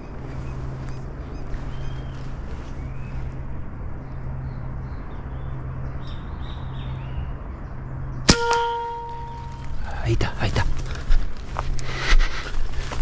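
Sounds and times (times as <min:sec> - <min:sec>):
air rifle shot with metallic ring: 0:08.3 - 0:09.8.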